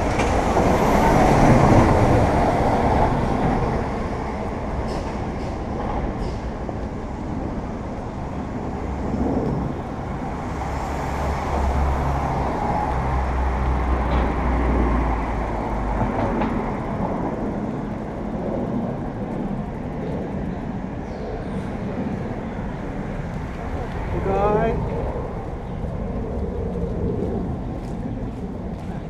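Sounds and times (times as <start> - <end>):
road traffic passing: 0.0 - 29.0.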